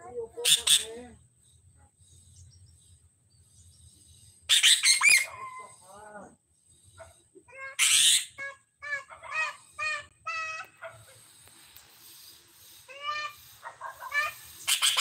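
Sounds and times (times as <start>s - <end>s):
bird harsh chattering: 0.4s - 1.2s, 4.5s - 5.8s, 7.6s - 11.3s, 12.6s - 15.0s
bird whistled notes: 4.5s - 5.7s.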